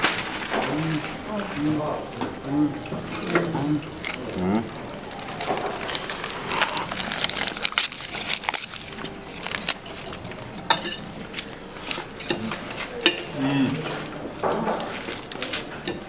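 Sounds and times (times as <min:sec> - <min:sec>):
cutlery scraping against plate: 0:09.0 - 0:14.1.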